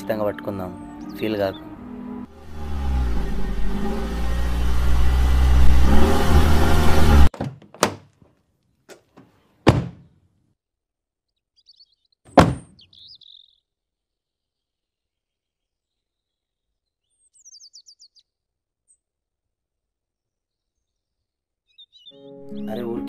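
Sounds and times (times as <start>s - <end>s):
vehicle engine revving: 2.3s - 7.3s
sharp thunks: 7.3s - 8.1s, 8.9s - 10.2s, 12.3s - 12.8s
faint bird chirp: 11.3s - 19.1s, 20.2s - 22.8s.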